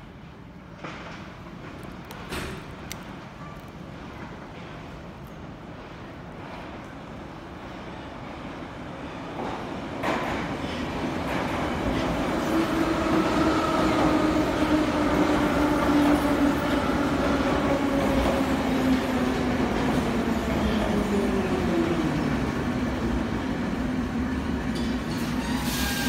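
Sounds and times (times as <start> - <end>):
metro train wheels rumbling on rail: 0.0 - 26.0
train brake whine: 25.1 - 26.0.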